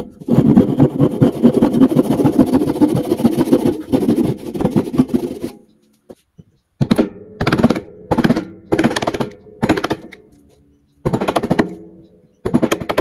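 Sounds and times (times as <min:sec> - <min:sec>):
hand saw rasping through wood: 0:00.0 - 0:05.7.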